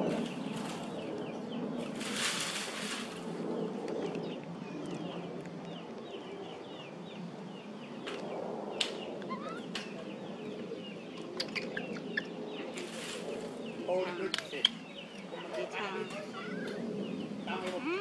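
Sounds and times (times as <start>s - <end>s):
high-pitched animal chirps: 9.2s - 9.8s, 11.4s - 12.3s
rising animal squeak: 9.2s - 9.9s, 11.4s - 12.4s.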